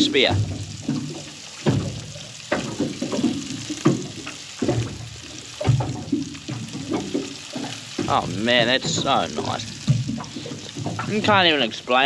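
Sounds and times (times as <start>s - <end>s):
man chewing: 9.7s - 11.1s.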